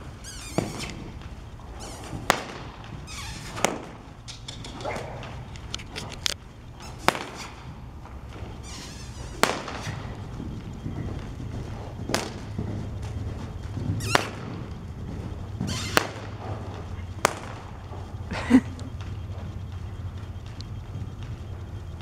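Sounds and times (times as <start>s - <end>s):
whip cracking: 2.0s - 5.4s, 6.9s - 7.7s, 9.4s - 10.1s, 12.1s - 12.5s, 14.1s - 14.5s, 15.8s - 17.7s.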